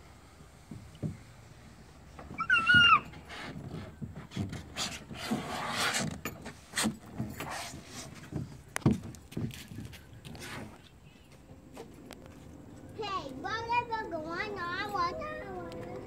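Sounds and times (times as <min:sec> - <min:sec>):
child sliding down plastic slide: 0:02.3 - 0:08.6
child squealing: 0:02.4 - 0:03.2.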